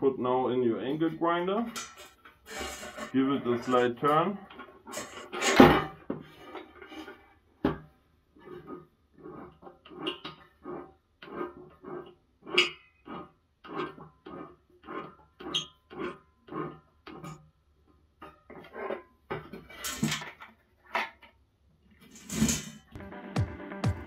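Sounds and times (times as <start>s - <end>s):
metal squeaking and scraping: 0.8s - 7.5s, 8.3s - 17.4s, 18.3s - 20.4s, 22.1s - 23.0s.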